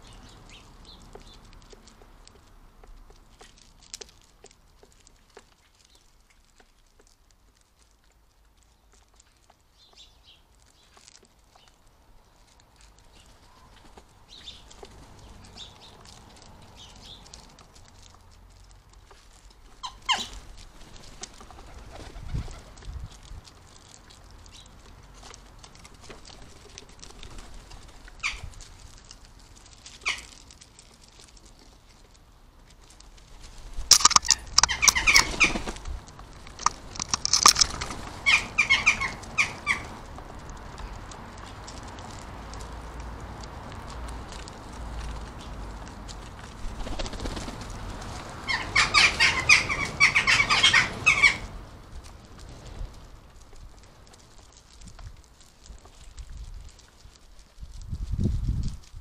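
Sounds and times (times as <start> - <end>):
jackdaws calling: 19.8 - 20.5, 28.2 - 28.5, 30.0 - 30.5, 33.9 - 35.8, 36.5 - 40.0, 48.1 - 51.6.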